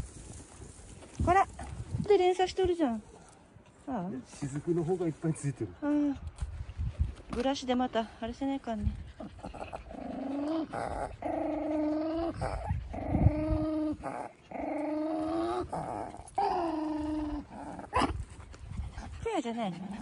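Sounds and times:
small dog growling: 9.2s - 18.4s.

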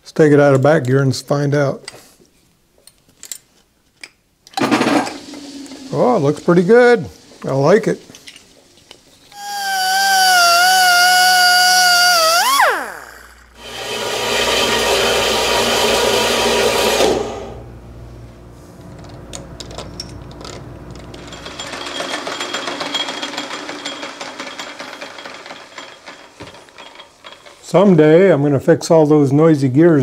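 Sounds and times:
hissy machine noise: 9.4s - 13.6s.

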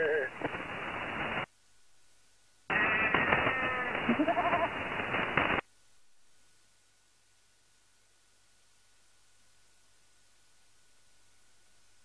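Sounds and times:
radio animal-like calls: 0.0s - 1.5s, 2.7s - 5.6s
radio hiss: 0.0s - 1.5s, 2.6s - 5.7s
faint steady tone: 5.7s - 12.0s.

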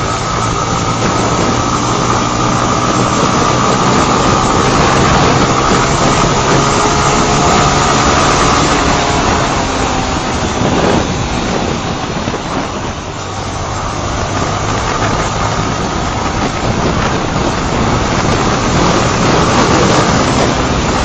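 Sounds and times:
motorcycle engine running: 0.0s - 21.0s
wind rush on microphone: 0.0s - 21.0s.

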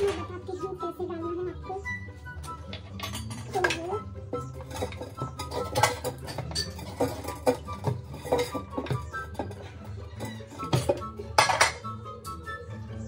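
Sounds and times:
metal spoon clinking on container: 2.6s - 11.8s.

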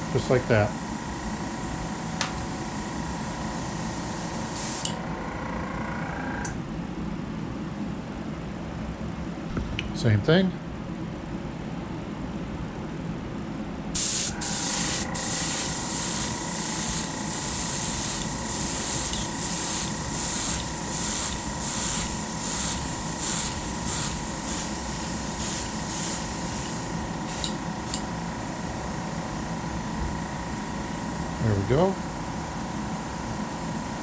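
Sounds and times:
steady high whine: 0.0s - 8.0s, 13.8s - 34.0s
airbrush spraying in hissing pulses: 14.0s - 28.1s.

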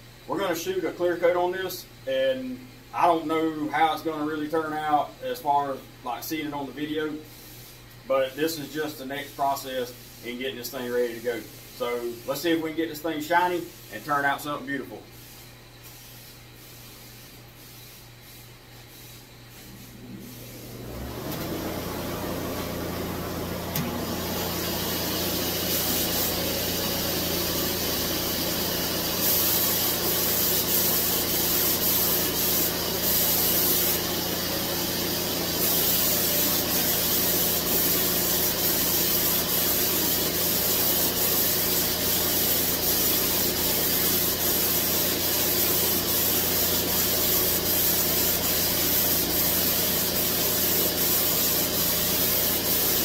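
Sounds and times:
spray gun hissing: 8.6s - 53.0s
turbine humming: 19.9s - 36.9s.

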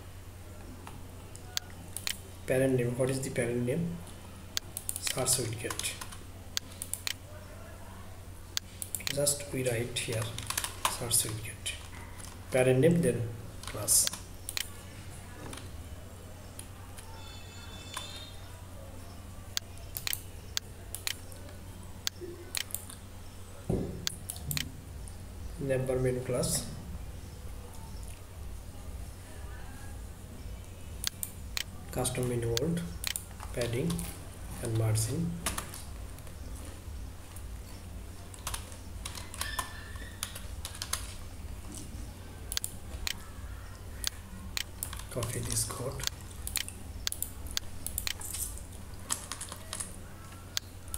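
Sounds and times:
low electrical hum: 0.0s - 50.9s
computer mouse clicks: 8.6s - 9.2s, 13.7s - 14.7s, 19.6s - 23.0s, 38.3s - 41.2s, 42.5s - 43.2s, 44.0s - 50.7s.

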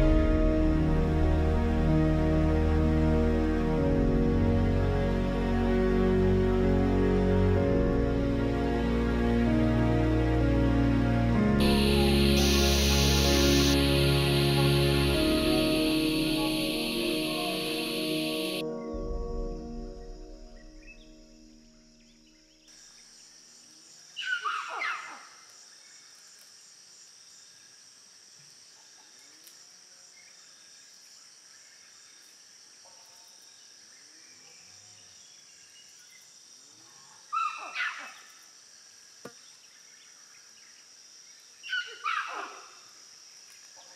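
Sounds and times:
high insect drone: 0.0s - 24.0s.

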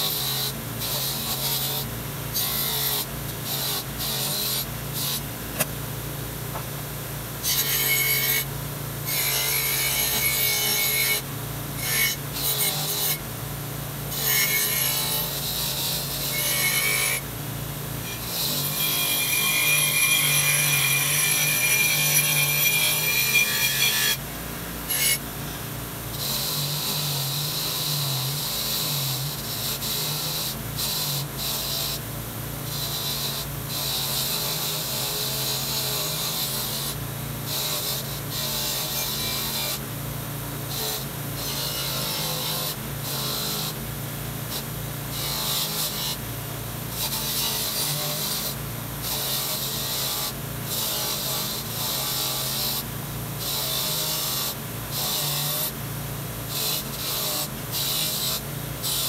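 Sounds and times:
bench grinder motor hum: 14.1s - 17.2s, 18.0s - 24.2s, 40.7s - 43.8s, 46.9s - 55.8s, 56.4s - 59.0s.

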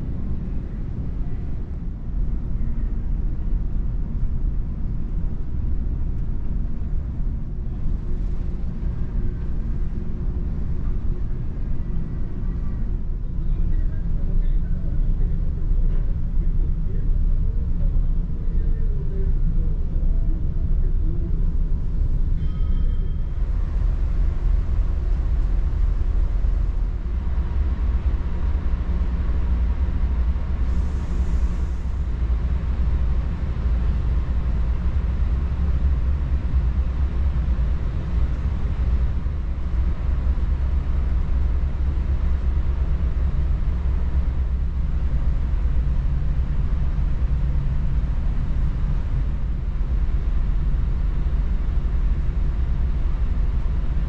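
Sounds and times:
ship engines droning: 0.0s - 54.0s.

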